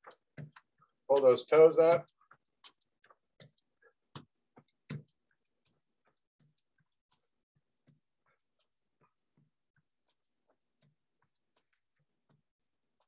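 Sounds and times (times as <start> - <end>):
sneakers tapping on floor: 0.0 - 2.4.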